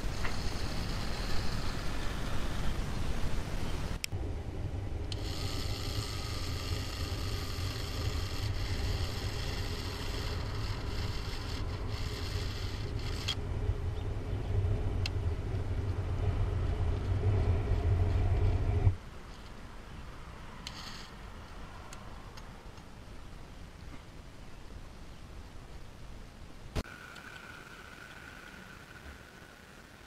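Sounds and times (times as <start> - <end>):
small electric motor whining: 0.0 - 2.7, 5.1 - 13.4, 26.8 - 30.0
low rumble: 0.0 - 19.0.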